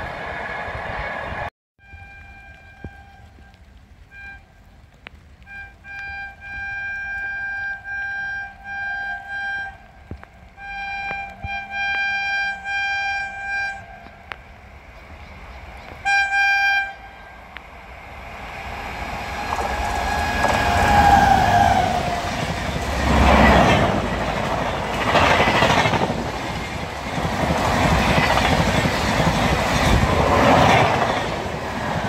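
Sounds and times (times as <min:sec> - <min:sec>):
train rushing rumble: 0:00.0 - 0:01.5, 0:11.5 - 0:32.0
locomotive horn blasts: 0:01.8 - 0:04.5, 0:05.4 - 0:14.4, 0:16.0 - 0:17.6, 0:19.2 - 0:24.1.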